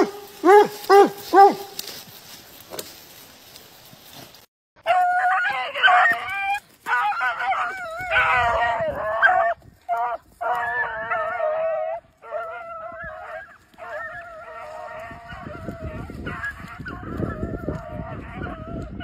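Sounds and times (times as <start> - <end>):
hounds baying: 0.0 - 2.0, 4.9 - 19.0.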